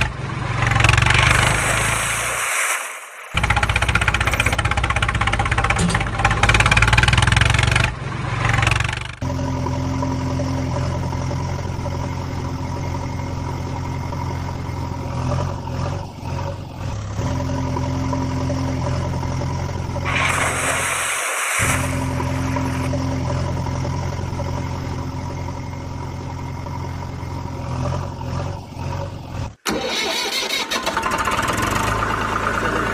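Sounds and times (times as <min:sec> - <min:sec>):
vehicle engine running: 0:00.0 - 0:02.4, 0:03.3 - 0:29.6, 0:31.3 - 0:32.9.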